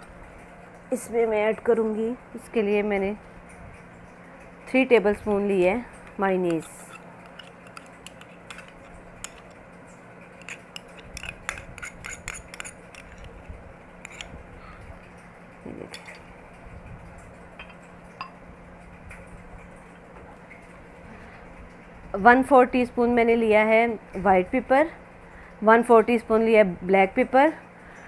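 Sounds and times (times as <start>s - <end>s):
faint steady hum: 0.0s - 28.0s
metal spoon scraping a tub: 6.4s - 9.6s, 10.3s - 13.4s, 14.0s - 14.4s.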